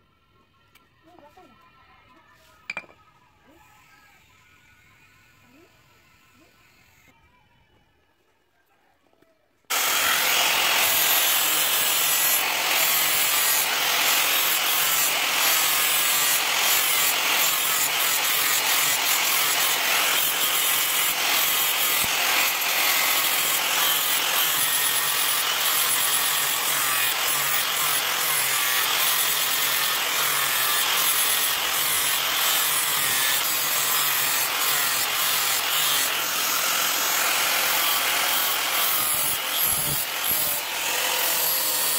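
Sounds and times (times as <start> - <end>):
angle grinder grinding steel: 9.7 - 41.9.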